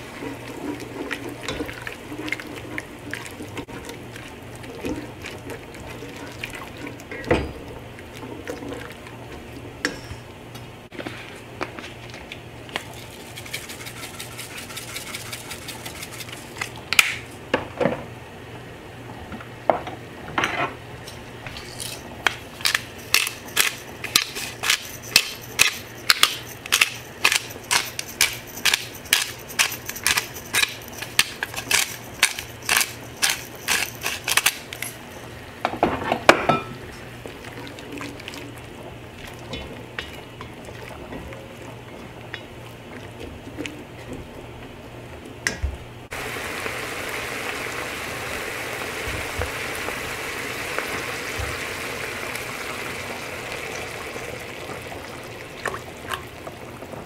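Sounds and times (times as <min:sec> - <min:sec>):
pepper mill clicking: 0:22.6 - 0:35.0
spatula scraping a pot: 0:22.6 - 0:35.2.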